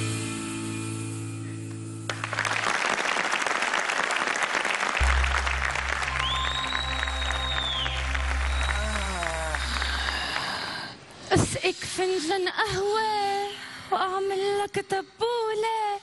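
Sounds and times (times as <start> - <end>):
studio audience applause: 2.1 - 11.0
background music with low bass: 5.0 - 9.3
held music chord: 5.0 - 9.6.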